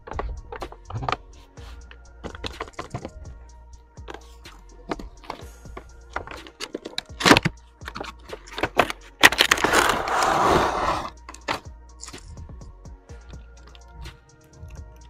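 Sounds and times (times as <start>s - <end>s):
plastic tray scraping out of box: 9.2s - 11.2s.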